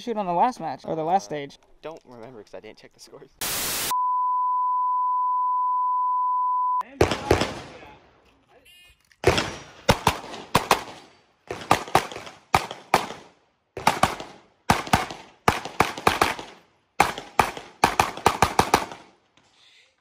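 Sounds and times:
rapid handgun fire: 7.0s - 7.9s, 9.2s - 19.1s.

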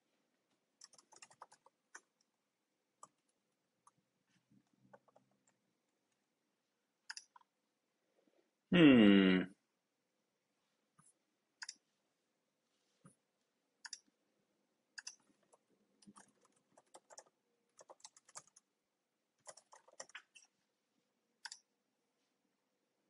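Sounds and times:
typing on computer keyboard: 0.8s - 2.1s, 4.8s - 5.6s, 15.0s - 18.7s, 19.4s - 20.5s.

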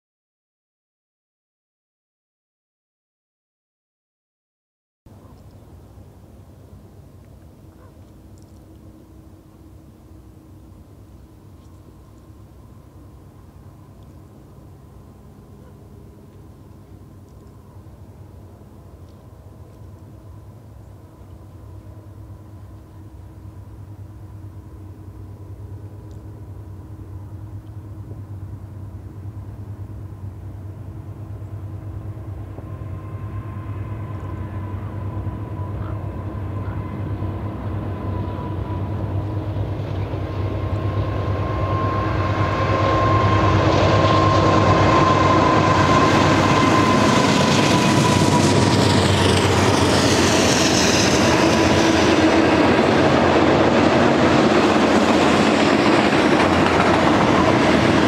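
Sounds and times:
diesel locomotive engines running: 5.1s - 58.0s
train wheels rushing on rails: 8.8s - 58.0s
wheels clickety-clack: 45.9s - 58.0s.

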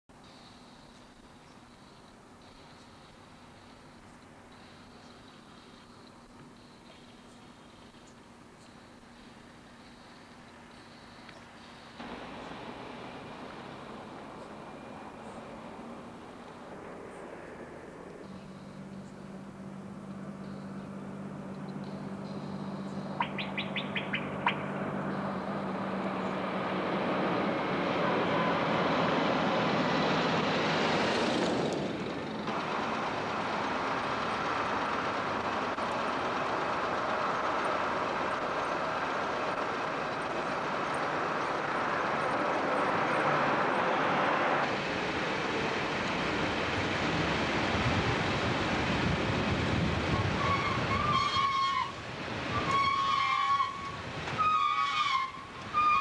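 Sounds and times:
street traffic: 0.0s - 56.0s
vehicle passing close: 12.0s - 52.8s.

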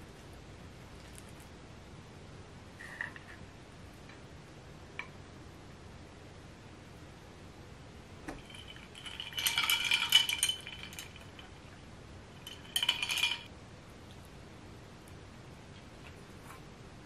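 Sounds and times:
rice paddle clinking on ceramic: 8.4s - 11.6s, 12.4s - 13.5s.

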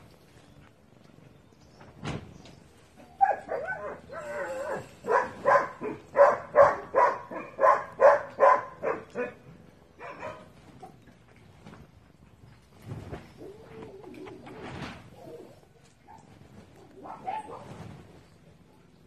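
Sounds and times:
dog barking: 3.2s - 9.4s, 10.0s - 10.5s, 17.0s - 17.7s.

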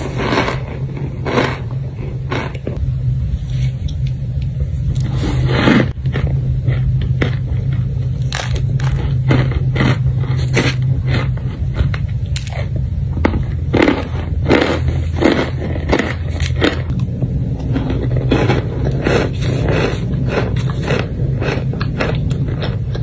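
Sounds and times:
low steady hum: 0.0s - 23.0s
crunching bites: 5.0s - 23.0s.

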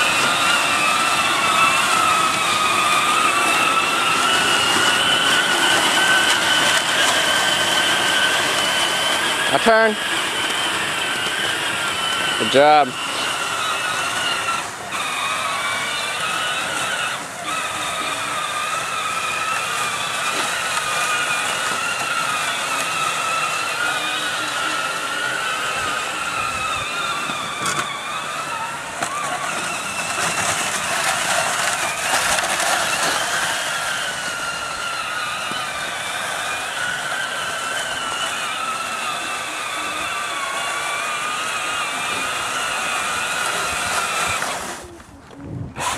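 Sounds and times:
electric toy motor whining: 0.0s - 45.9s.

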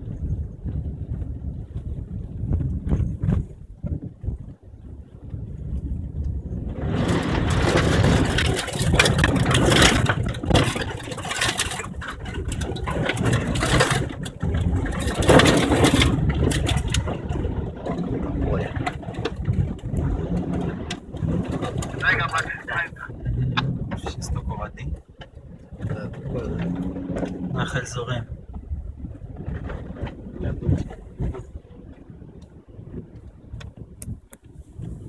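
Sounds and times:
car engine humming: 0.0s - 35.0s
water and mud splashing: 6.5s - 33.5s.

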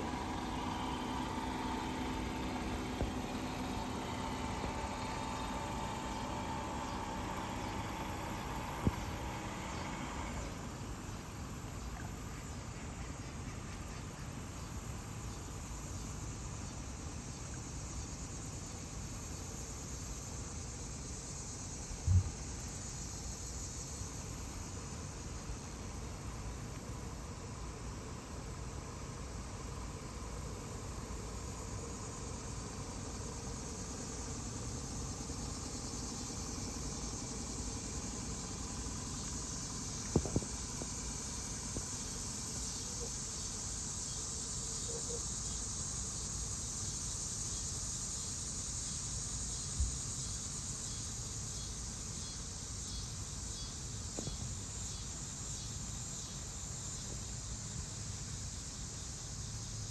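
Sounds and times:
low outdoor rumble: 0.0s - 12.1s, 30.2s - 43.2s
high-pitched insect chorus: 0.0s - 59.9s
dull thump: 22.0s - 22.4s.

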